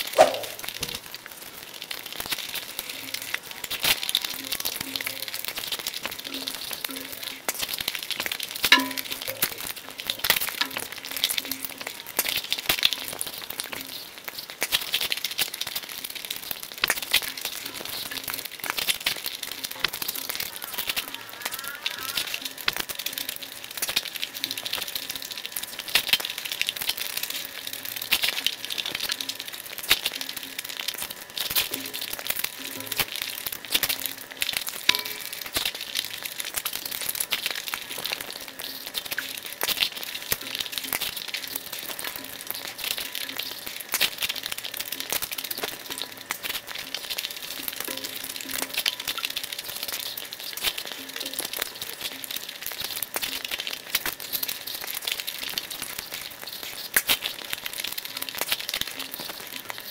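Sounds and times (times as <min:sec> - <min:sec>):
lip smacking: 0:00.2 - 0:00.6.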